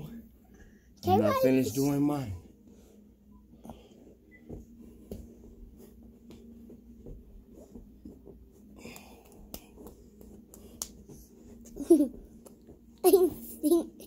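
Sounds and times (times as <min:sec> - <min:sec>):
faint low hum: 0:00.0 - 0:14.0
rustling on exercise mat: 0:03.8 - 0:08.8
soft knocks on exercise mat: 0:06.2 - 0:08.4.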